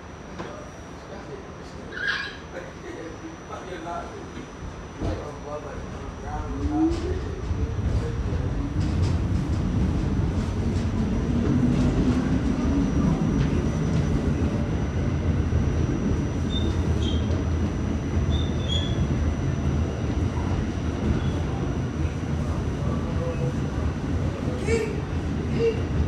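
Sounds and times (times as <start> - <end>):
faint squeaks: 1.8 - 2.6
low motor whine: 2.5 - 26.0
wheels rumbling on rail: 4.7 - 26.0.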